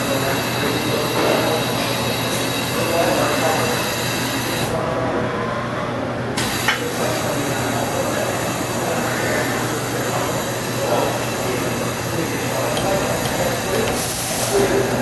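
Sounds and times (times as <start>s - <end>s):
low machine hum: 4.7s - 15.0s.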